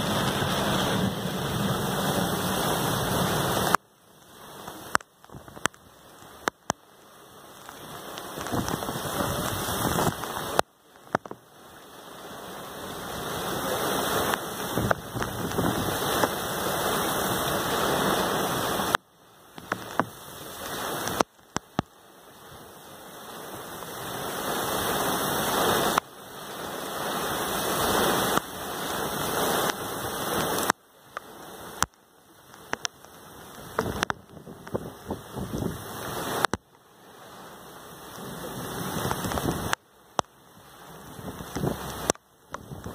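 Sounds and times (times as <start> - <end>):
raindrops tapping on vehicle: 0.0 - 11.9, 14.1 - 22.0, 29.4 - 36.9, 38.0 - 42.9
gusting wind: 0.0 - 42.9
torrential rain: 0.0 - 42.9.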